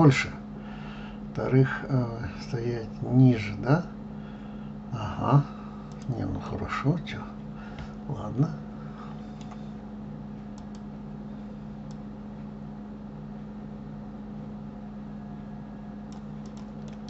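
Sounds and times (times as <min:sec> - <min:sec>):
steady low hum: 0:00.0 - 0:17.0
faint mouse clicks: 0:05.9 - 0:06.1, 0:09.4 - 0:09.6, 0:10.5 - 0:10.9, 0:11.8 - 0:12.0, 0:16.1 - 0:17.0.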